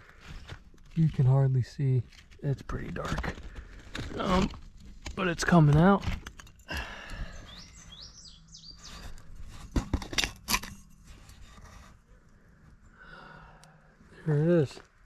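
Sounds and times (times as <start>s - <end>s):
small bird chirping: 7.2s - 9.3s
glass bottle scraping in dirt: 7.4s - 12.2s.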